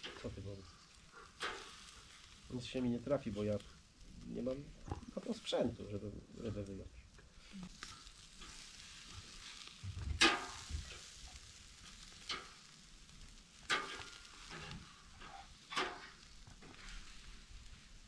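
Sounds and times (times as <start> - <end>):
meat sizzling on a grill: 0.0 - 18.0
metal utensil scraping grate: 13.7 - 17.0.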